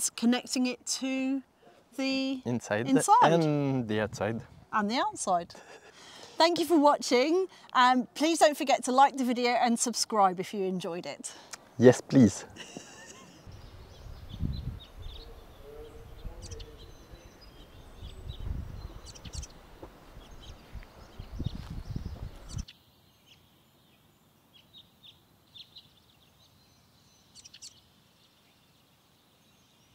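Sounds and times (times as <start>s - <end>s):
wind rumbling on microphone: 3.9s - 5.6s, 13.4s - 22.7s
small birds chirping: 4.7s - 29.9s.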